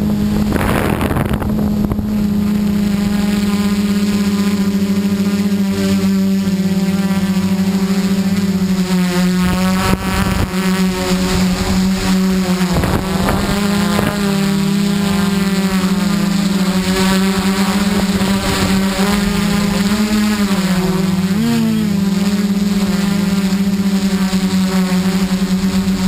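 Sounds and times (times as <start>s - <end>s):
drone propellers whining: 0.0s - 26.0s
wind knocks on microphone: 0.4s - 2.2s.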